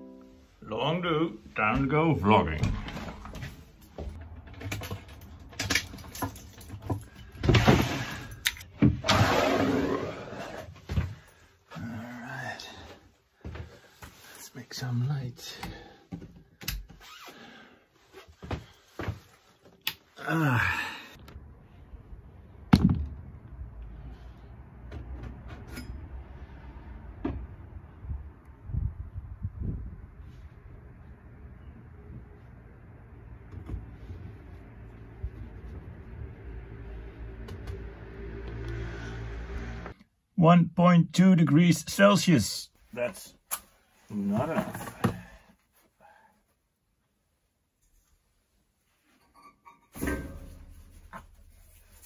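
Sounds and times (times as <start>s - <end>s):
knocks and thumps of climbing: 44.2s - 45.6s.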